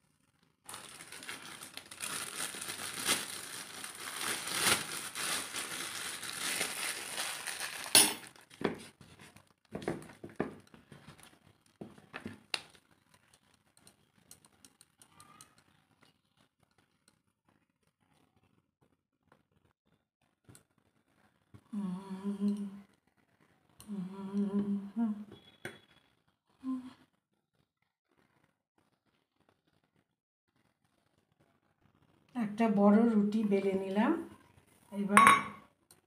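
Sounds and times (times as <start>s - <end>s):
crinkly rustling handling noise: 0.2s - 13.5s.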